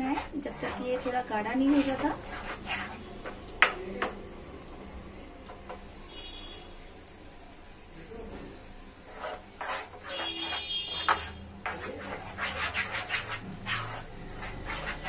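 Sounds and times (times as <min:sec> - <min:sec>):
wooden spoon scraping a pan: 0:00.0 - 0:04.1, 0:09.0 - 0:15.0.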